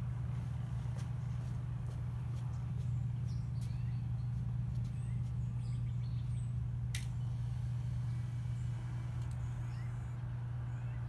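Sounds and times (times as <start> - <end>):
birds chirping: 2.2 - 11.0
sharp click: 6.9 - 7.2.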